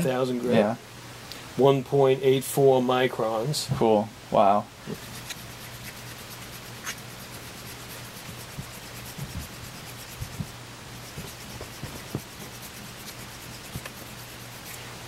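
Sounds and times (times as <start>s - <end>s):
razor blade scraping on whetstone: 4.9s - 15.0s.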